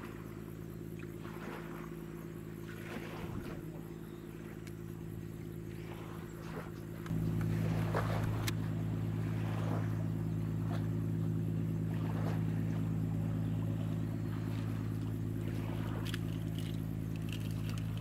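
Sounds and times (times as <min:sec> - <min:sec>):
boat engine droning: 0:00.0 - 0:18.0
wind: 0:00.0 - 0:18.0
water wash: 0:05.8 - 0:18.0.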